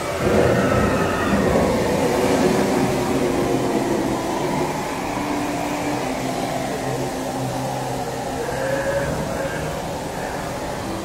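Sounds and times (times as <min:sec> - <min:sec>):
rumbling hissing ride ambience: 0:00.0 - 0:11.0.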